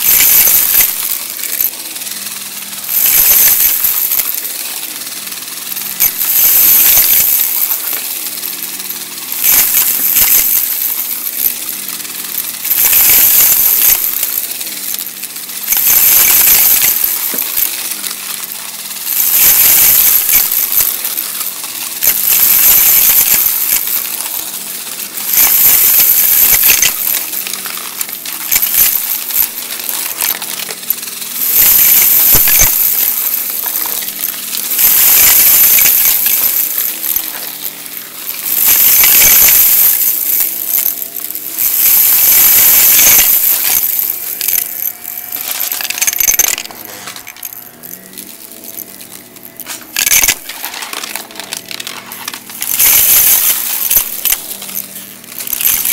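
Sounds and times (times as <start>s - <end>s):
vacuum cleaner running: 0.0s - 55.9s.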